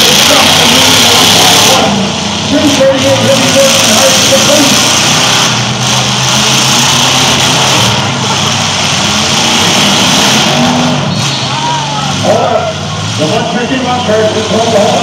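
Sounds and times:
truck engines revving: 0:00.0 - 0:15.0.

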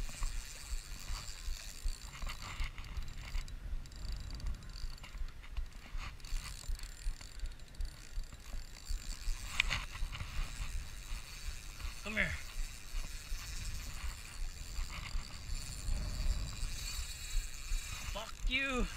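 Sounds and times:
fishing reel whirring and clicking: 0:00.0 - 0:18.9
low rumble: 0:14.8 - 0:18.0.

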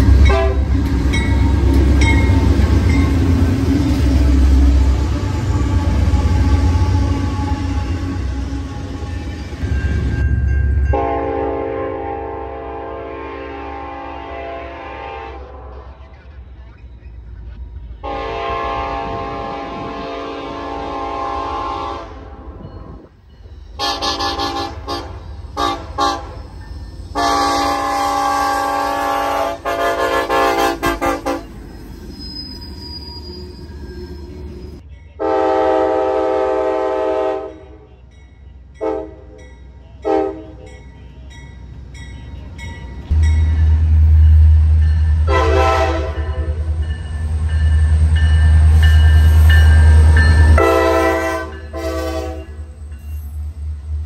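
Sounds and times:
locomotive deep rumble: 0:00.0 - 0:11.2
train air horn blasts: 0:00.2 - 0:00.8, 0:10.9 - 0:16.1, 0:18.0 - 0:22.6, 0:23.8 - 0:26.4, 0:27.1 - 0:31.5, 0:35.2 - 0:37.9, 0:38.8 - 0:39.4, 0:40.0 - 0:40.7, 0:45.2 - 0:46.6, 0:49.3 - 0:52.8.

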